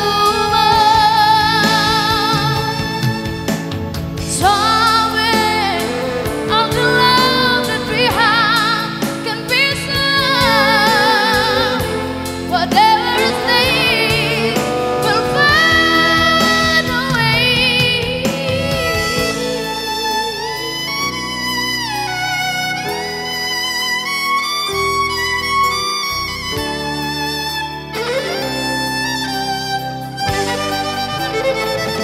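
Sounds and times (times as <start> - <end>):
person singing: 0.0 - 21.5
instrumental accompaniment: 0.0 - 32.0.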